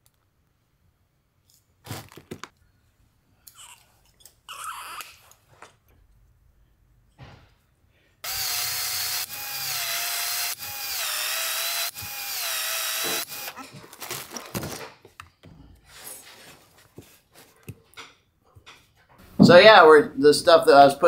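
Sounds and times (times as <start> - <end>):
expansion tool motor whine: 8.2 - 13.6.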